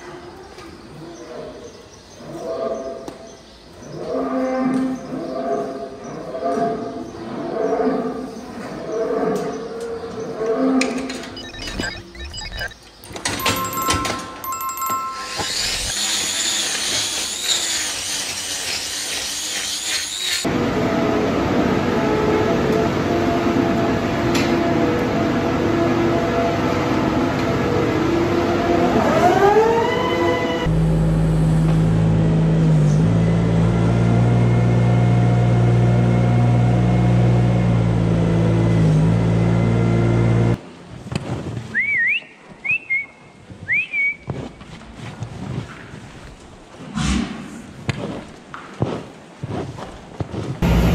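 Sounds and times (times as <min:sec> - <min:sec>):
short rising chirps: 0:13.4 - 0:16.5
grinder whining and rasping: 0:15.2 - 0:20.5
farm machine engine humming: 0:50.6 - 0:50.9.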